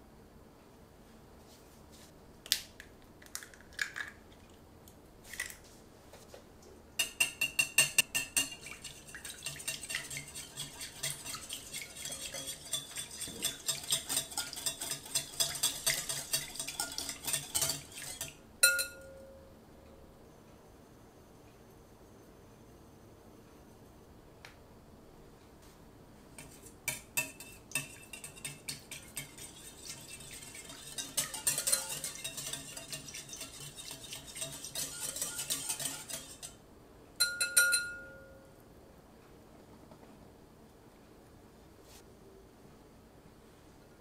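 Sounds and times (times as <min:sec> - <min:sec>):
whisk clicking in glass bowl: 0:07.0 - 0:19.0, 0:26.4 - 0:36.6.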